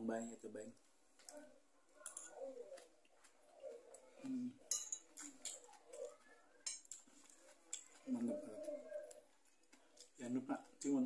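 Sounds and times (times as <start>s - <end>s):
quiet chewing: 0.8s - 11.0s
cutlery clinking on a plate: 4.6s - 5.6s, 6.6s - 7.0s.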